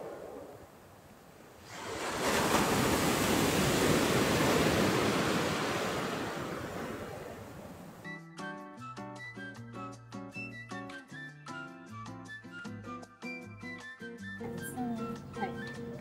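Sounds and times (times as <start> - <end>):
waves breaking on pebble beach: 0.0 - 8.0.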